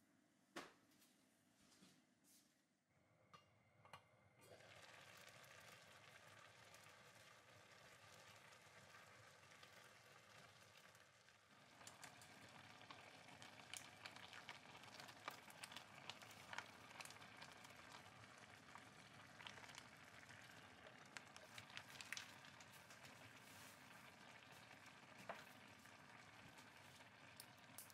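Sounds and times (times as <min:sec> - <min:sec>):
chicken crackling in a pot: 0:04.5 - 0:27.9.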